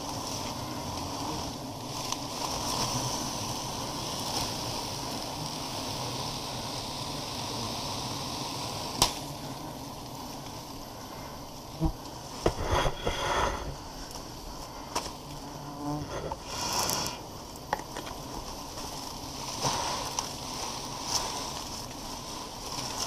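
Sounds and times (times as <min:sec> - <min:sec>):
bees buzzing: 0:00.0 - 0:23.0
rustling and handling noises: 0:11.6 - 0:23.0.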